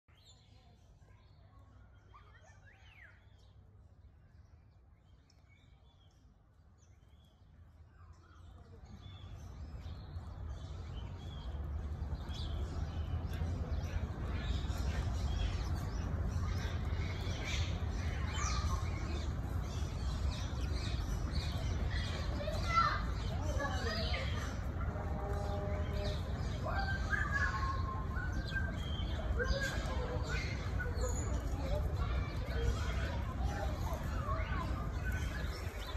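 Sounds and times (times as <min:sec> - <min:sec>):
birds chirping: 0:00.1 - 0:35.9
low rumbling background noise: 0:03.1 - 0:35.9.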